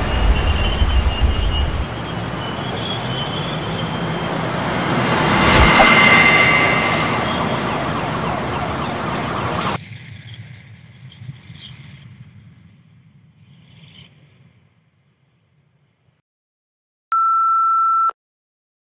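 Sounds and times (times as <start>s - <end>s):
faint low rumble: 0.0s - 3.0s
faint high ringing tones: 0.0s - 9.8s
loud rushing sound effect: 0.0s - 9.8s.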